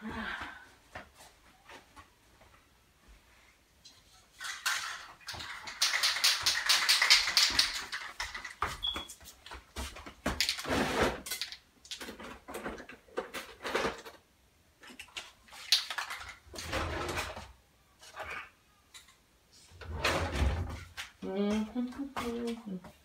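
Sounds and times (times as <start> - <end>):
objects knocking and clunking: 3.9 - 19.2
rapid clicking and rattling: 4.4 - 8.6.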